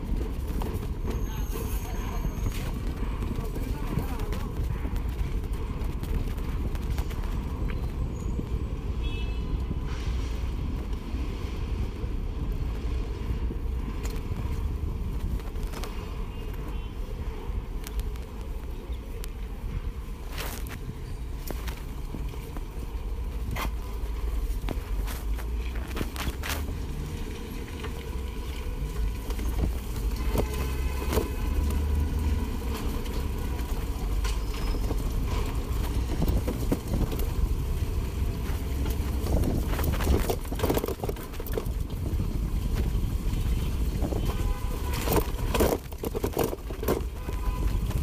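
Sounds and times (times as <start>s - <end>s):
bike rolling over rough road: 0.0s - 8.9s, 10.4s - 16.9s, 17.5s - 48.0s
clicks and knocks from bumps: 38.1s - 43.0s, 44.0s - 48.0s.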